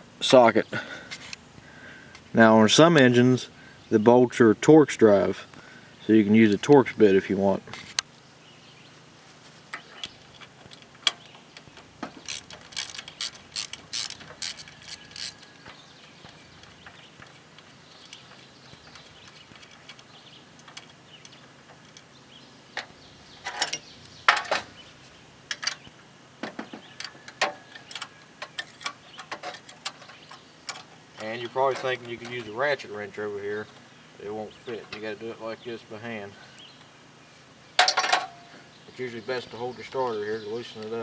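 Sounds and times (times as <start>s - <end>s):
ratchet clicking: 12.2s - 15.6s.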